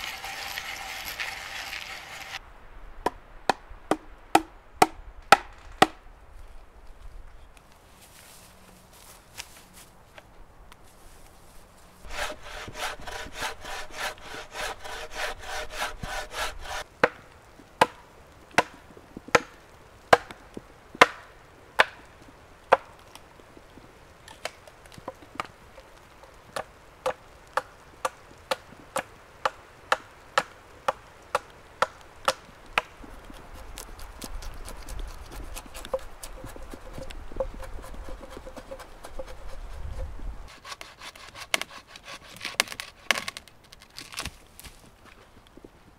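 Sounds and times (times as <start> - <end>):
bow saw rasping through wood: 0.0 - 2.4, 12.0 - 16.8, 33.3 - 43.4
saw cutting through log: 0.0 - 2.4, 12.0 - 16.8, 33.4 - 43.4
hatchet chopping wood: 3.0 - 6.0, 12.1 - 17.2, 17.8 - 18.0, 18.6 - 20.4, 21.0 - 22.0, 26.6 - 32.9, 40.5 - 43.4.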